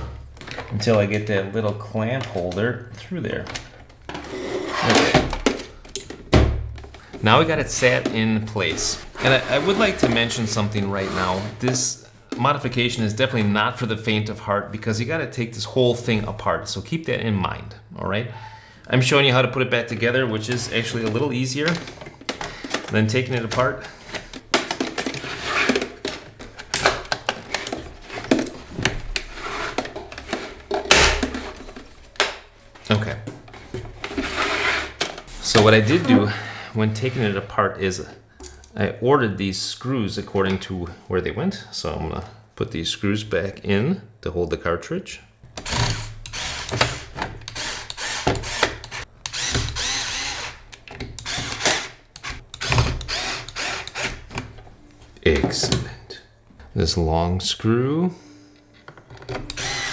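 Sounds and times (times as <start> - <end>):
cordless drill driving screws: 45.6 - 54.2, 59.5 - 59.9.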